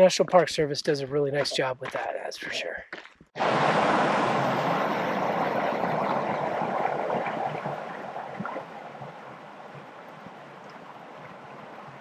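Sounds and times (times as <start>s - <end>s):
creek rushing over rocks: 3.4s - 12.0s
small water cascade: 3.4s - 12.0s.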